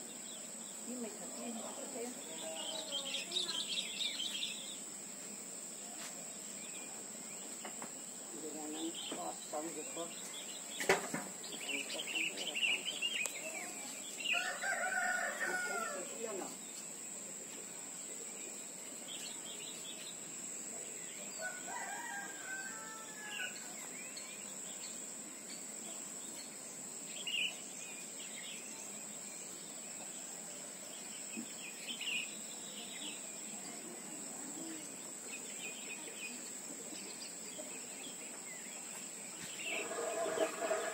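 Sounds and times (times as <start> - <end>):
high-pitched insect trill: 0.0 - 40.9
faint rooster crow: 14.2 - 16.3, 21.3 - 23.8.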